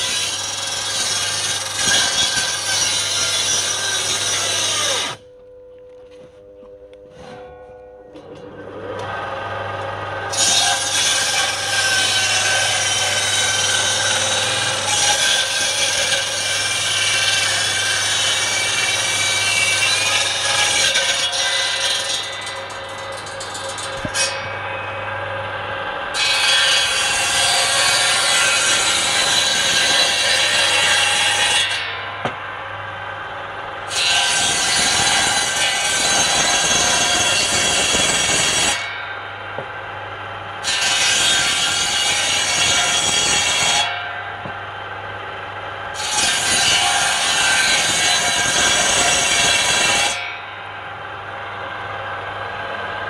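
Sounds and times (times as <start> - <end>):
circular saw cutting wood: 0.0 - 5.2, 8.9 - 32.2, 33.8 - 39.3, 40.6 - 44.3, 45.8 - 50.7.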